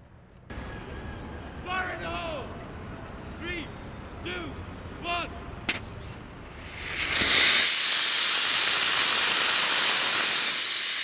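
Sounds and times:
rocket motor exhaust hissing: 6.4 - 11.0.

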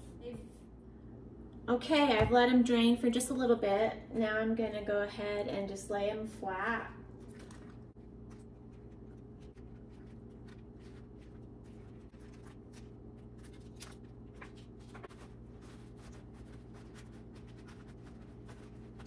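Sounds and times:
low hum: 6.9 - 19.0
lettuce leaves rustling and tapping: 7.2 - 19.0.

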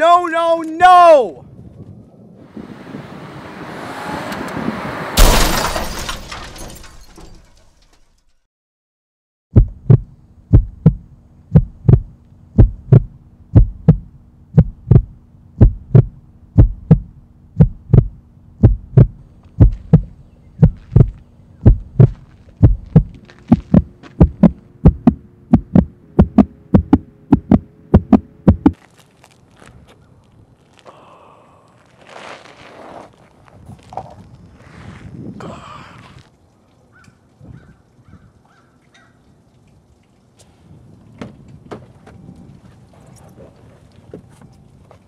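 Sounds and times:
heartbeat thumps: 9.5 - 28.8
steady hum: 9.6 - 28.8.

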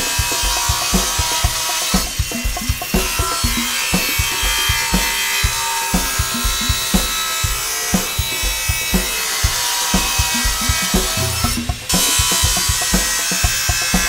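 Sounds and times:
background music with steady beat: 0.0 - 14.0
table saw cutting wood: 2.8 - 14.0.

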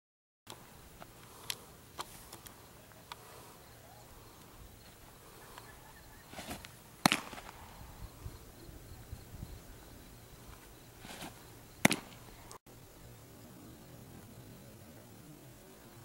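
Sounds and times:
faint outdoor hush: 0.5 - 16.0
short scuffle: 6.2 - 7.6, 10.6 - 12.4
ball popping into catcher's mitt: 6.3 - 7.6, 11.1 - 12.2.

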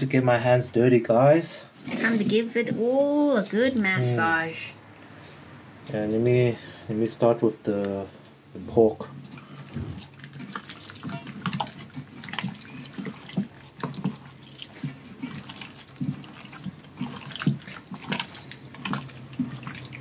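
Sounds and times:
wet squelches and slaps: 9.8 - 20.0.

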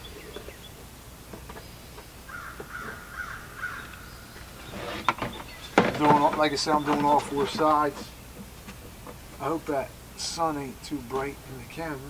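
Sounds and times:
crow cawing: 2.3 - 4.3.

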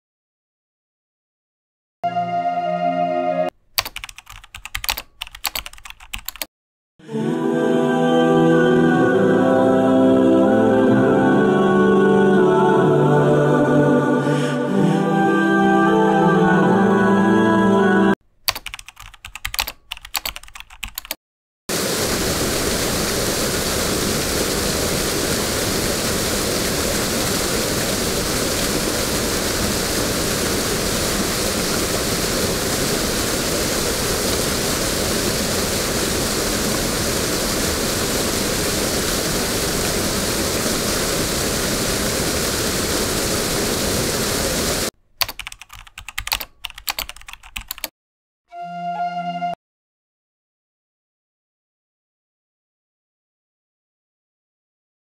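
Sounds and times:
keyboard typing clicks: 3.8 - 6.5, 18.4 - 21.2, 45.2 - 47.9
river rushing over rocks: 21.8 - 44.9.

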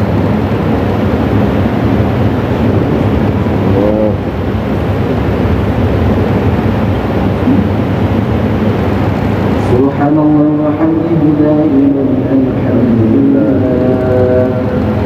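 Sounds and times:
loud steady rushing noise: 0.0 - 15.0
man chanting: 3.6 - 4.2, 9.6 - 15.0.

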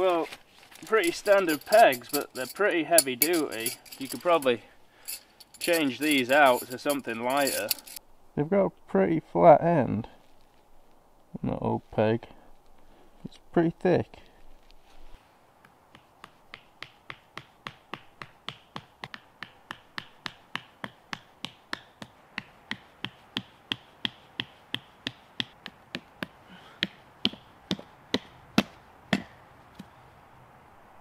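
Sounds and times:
tent pegs being hammered: 15.9 - 29.4.

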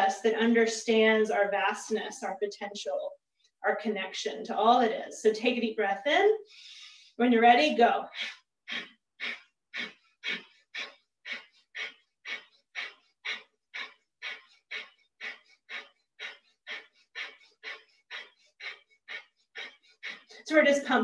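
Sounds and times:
woman breathing forcefully: 6.4 - 7.2, 8.1 - 21.0.

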